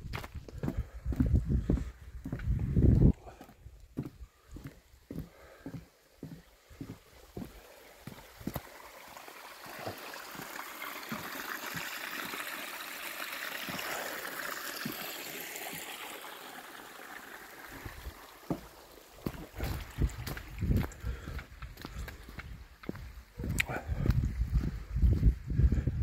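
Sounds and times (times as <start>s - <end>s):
soft footsteps on path: 0.0s - 9.0s, 17.8s - 26.0s
stream water running: 0.0s - 25.9s.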